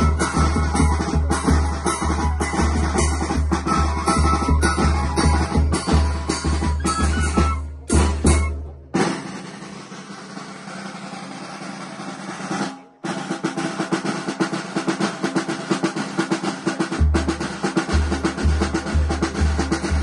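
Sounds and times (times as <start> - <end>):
deep bass drum beat: 0.0 - 9.6, 16.8 - 20.0
snare drum roll: 0.0 - 20.0.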